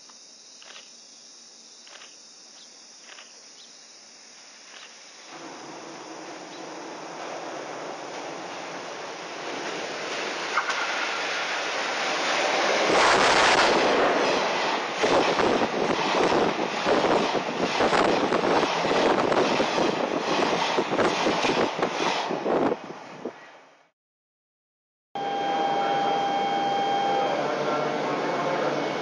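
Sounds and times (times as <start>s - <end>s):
train passing at speed: 5.1s - 23.9s, 25.5s - 29.0s
wheels clattering over rail joints: 5.3s - 22.4s
wind buffeting microphone: 12.3s - 23.4s.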